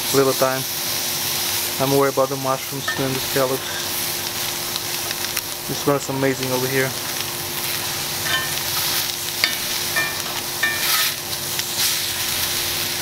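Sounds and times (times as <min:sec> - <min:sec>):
mushrooms sizzling in a skillet: 0:00.0 - 0:13.0
metal tongs clinking on pan: 0:02.9 - 0:03.2, 0:08.2 - 0:11.2.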